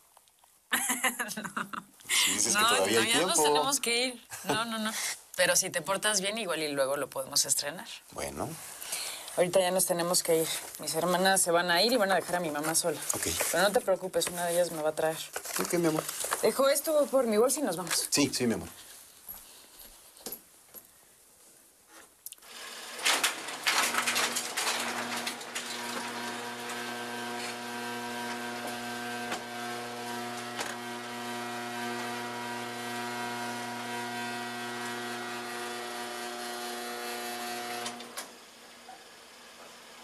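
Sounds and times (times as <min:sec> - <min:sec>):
electric motor whining: 0:22.4 - 0:39.9.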